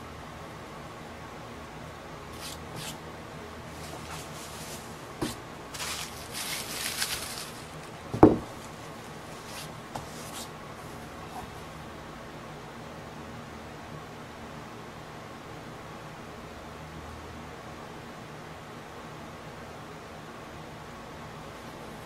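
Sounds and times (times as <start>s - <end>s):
bubble wrap crinkling: 2.4s - 3.0s, 3.7s - 10.5s
sharp knock: 8.2s - 8.5s.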